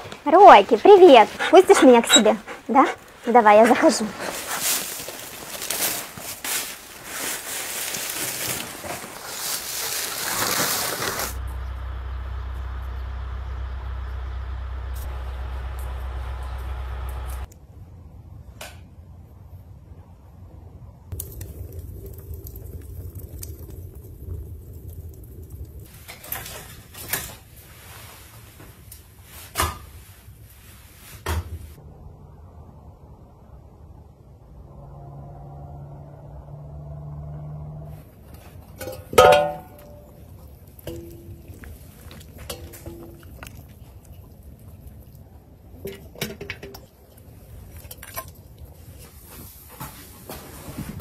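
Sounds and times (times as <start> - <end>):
liquid dripping and sloshing: 21.1 - 27.4, 38.2 - 49.0.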